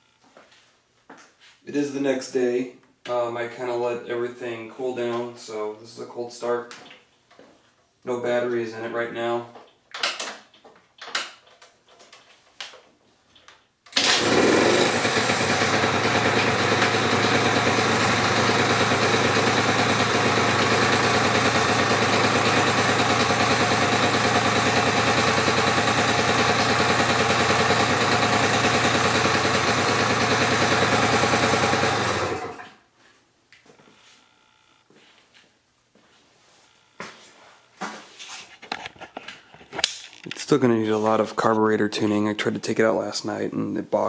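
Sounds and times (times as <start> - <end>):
two-stroke scooter engine idling: 14.0 - 32.6.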